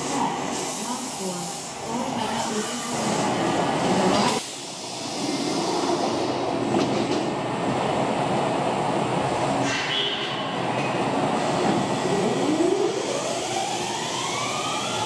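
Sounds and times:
train wheel noise: 0.0s - 15.0s
electric train running: 11.6s - 15.0s.

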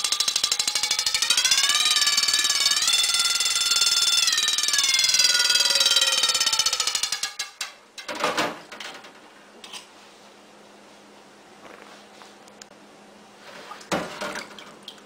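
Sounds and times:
mechanical alarm bell ringing: 0.0s - 7.4s.

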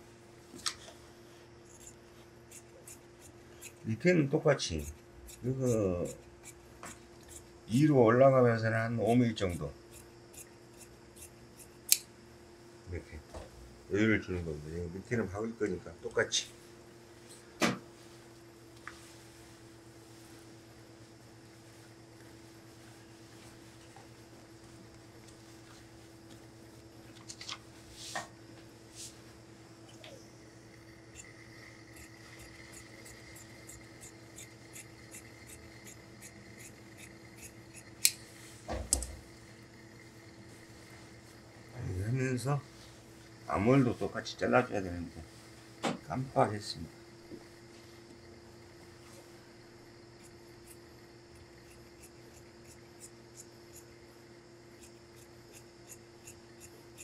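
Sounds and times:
steady low hum: 0.0s - 57.0s
shears snipping fabric: 1.6s - 12.1s, 31.0s - 42.1s, 50.2s - 53.9s, 54.8s - 57.0s
scissors snipping fabric: 9.0s - 12.1s, 32.0s - 38.2s.

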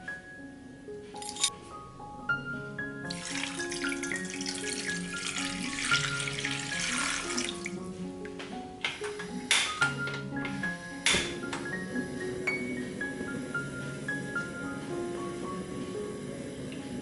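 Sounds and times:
instrumental music: 0.0s - 17.0s
water pouring into frying pan: 3.0s - 7.8s.

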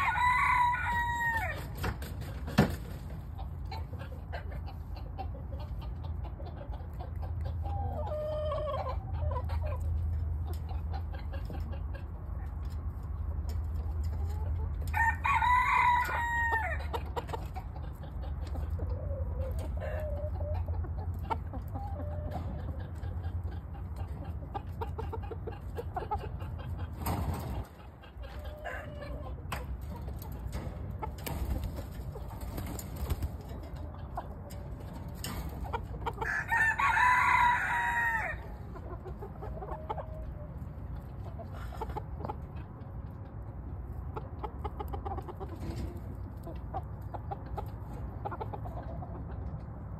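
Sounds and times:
rooster crow: 0.0s - 1.7s, 14.9s - 16.9s, 36.2s - 38.6s
chickens clucking: 0.0s - 49.9s.

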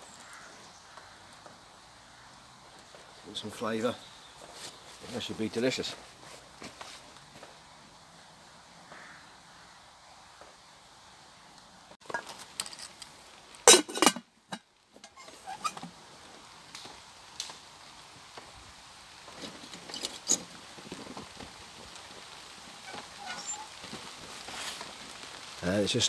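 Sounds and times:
raindrops pattering: 0.0s - 26.0s
cookware knocking and clanking: 13.7s - 14.2s.

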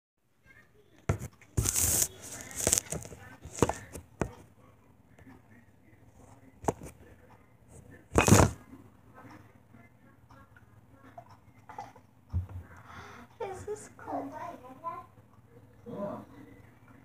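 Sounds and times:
phone rubbing and knocking: 1.1s - 4.4s.

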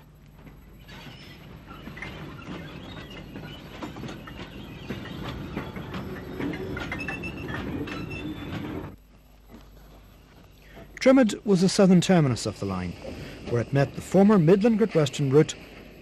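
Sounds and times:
clanks and knocks of wagons: 0.0s - 12.2s
steam locomotive rumble: 0.0s - 16.0s.

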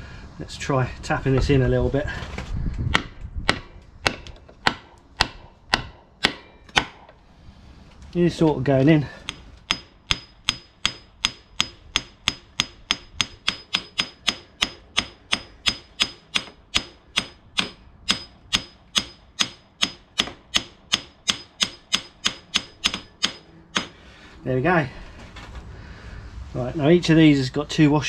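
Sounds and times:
hammer knocking on wood block: 2.9s - 7.1s, 9.2s - 24.0s.

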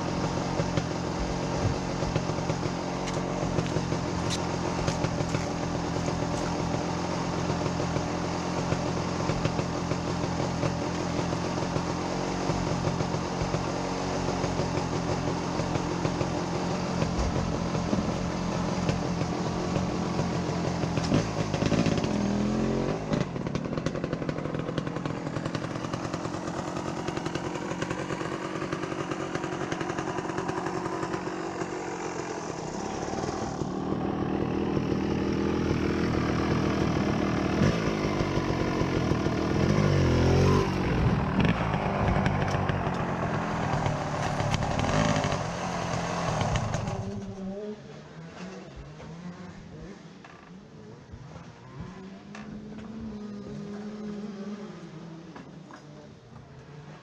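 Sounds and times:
dirt bike engine idling: 0.0s - 47.7s.

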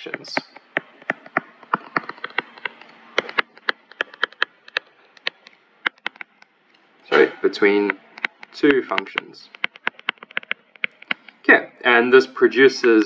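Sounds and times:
stylus tapping on tablet screen: 0.0s - 6.8s, 7.7s - 11.4s.

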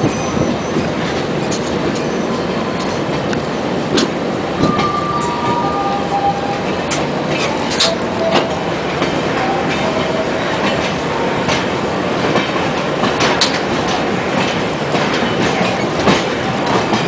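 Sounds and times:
train wheels rumbling on rail: 0.0s - 17.0s
wheels clacking over rail joints: 0.1s - 17.0s.

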